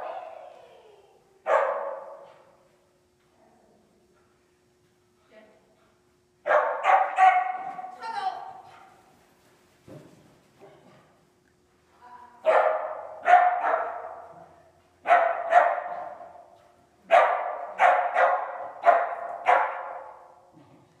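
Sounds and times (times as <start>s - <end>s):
dog barking with echo: 1.5s - 2.4s, 6.5s - 7.9s, 12.4s - 14.3s, 15.0s - 16.4s, 17.1s - 20.2s.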